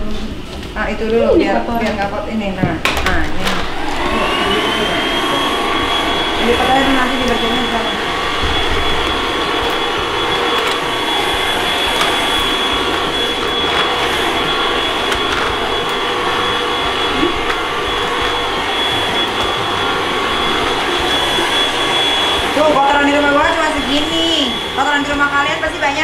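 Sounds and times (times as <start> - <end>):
stick vacuum cleaner running: 0.0 - 26.0.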